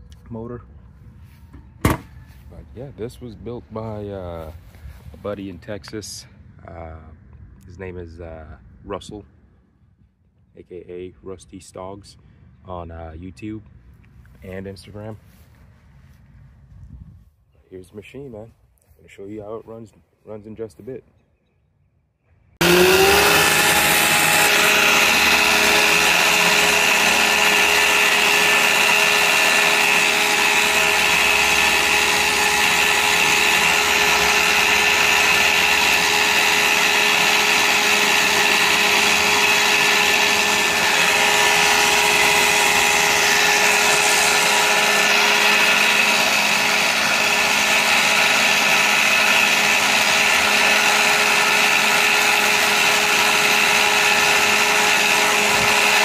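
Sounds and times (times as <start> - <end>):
electric reel mower whining: 22.6 - 56.0
reel cutting grass: 22.6 - 56.0.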